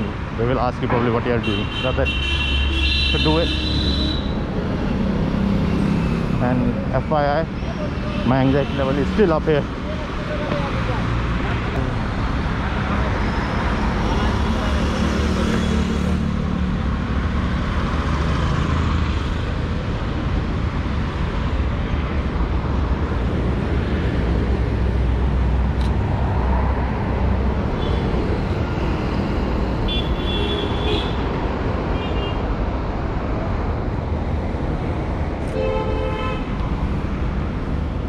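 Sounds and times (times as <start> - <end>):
rumble of passing vehicles: 0.0 - 38.0
long car horn: 35.6 - 36.6.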